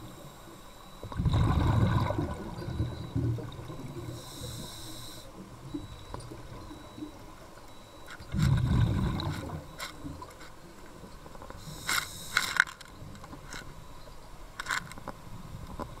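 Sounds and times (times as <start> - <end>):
exhaled bubbles underwater: 1.0 - 4.6, 8.3 - 10.3
regulator inhalation hiss: 4.2 - 5.3, 11.6 - 12.5.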